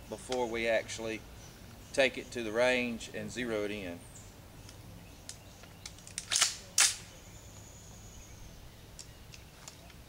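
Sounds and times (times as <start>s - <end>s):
rifle action clacking: 5.3s - 7.1s.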